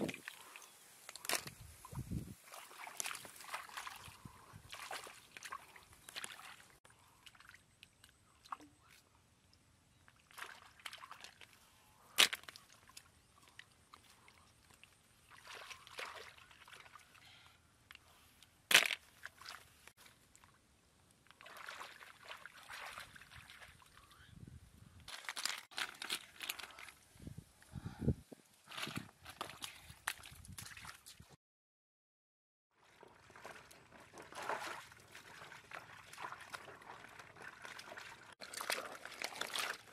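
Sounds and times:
hands splashing in muddy water: 1.1s - 7.6s, 14.7s - 17.1s, 28.7s - 31.2s, 33.3s - 39.9s.

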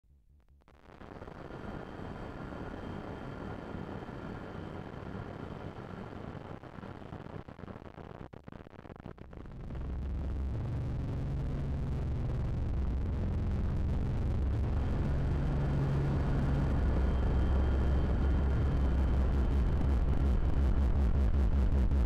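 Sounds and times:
low synth drone with bass: 9.8s - 22.0s.

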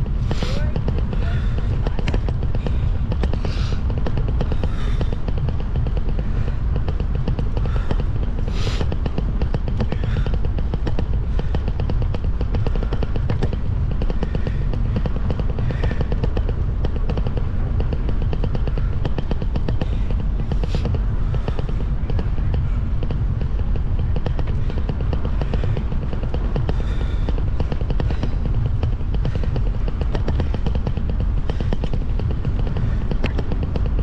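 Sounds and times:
vehicle engine rumbling: 0.0s - 34.0s.

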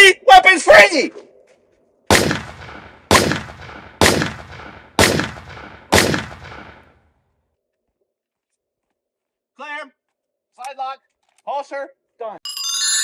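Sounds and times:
handgun shots with echo: 2.1s - 6.9s.

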